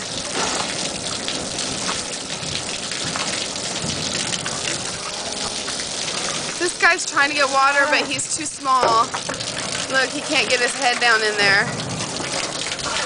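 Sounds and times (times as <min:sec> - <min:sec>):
water splashing into metal tank: 0:00.0 - 0:13.0
water spraying from hose: 0:00.0 - 0:13.0.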